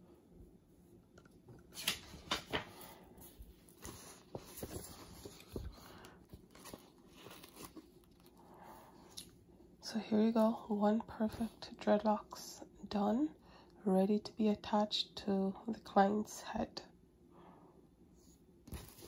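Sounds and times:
paper rustling and crackling: 1.7 - 8.4, 18.7 - 19.0.

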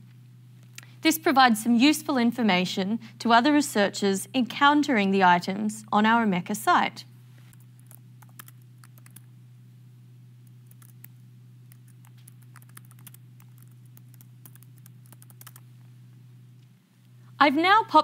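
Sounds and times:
steady low hum: 0.0 - 18.0
keyboard keys clicking: 7.8 - 9.3, 10.6 - 11.1, 11.7 - 15.6.

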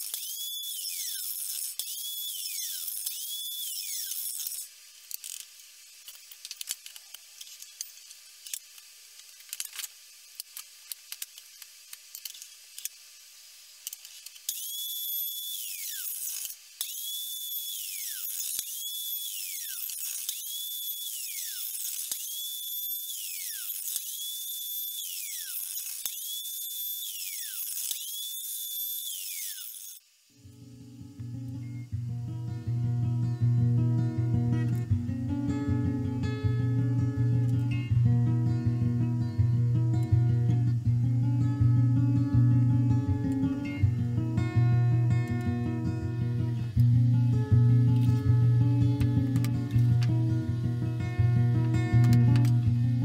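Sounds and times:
mitre saw motor whine: 0.0 - 4.7, 14.5 - 34.8.

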